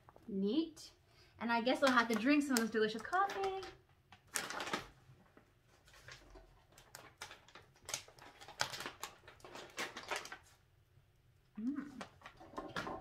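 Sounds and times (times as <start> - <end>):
rustling of wrapping material: 1.8 - 10.6.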